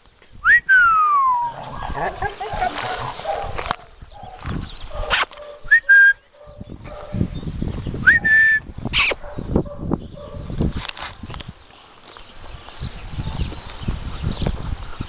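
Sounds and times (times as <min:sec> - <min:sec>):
person whistling: 0:00.4 - 0:01.5, 0:05.7 - 0:06.2, 0:08.0 - 0:08.6
footsteps on gravel: 0:02.2 - 0:05.6.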